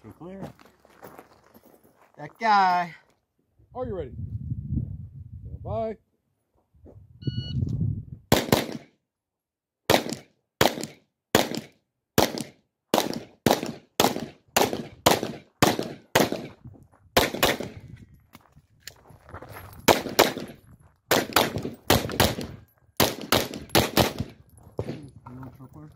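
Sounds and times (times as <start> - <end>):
shot timer beep: 7.2 - 7.6
pistol shots: 8.3 - 8.9, 9.9 - 16.6, 17.2 - 17.8, 19.9 - 25.0.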